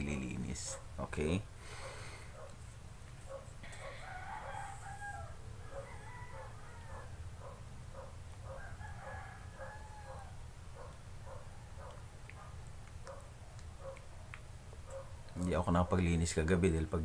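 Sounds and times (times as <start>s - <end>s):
rooster crowing: 3.6s - 11.9s.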